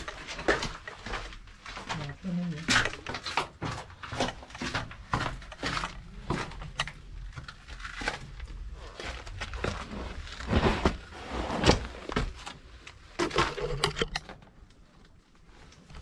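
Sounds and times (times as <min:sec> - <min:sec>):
scuffing footsteps: 0:02.7 - 0:06.8.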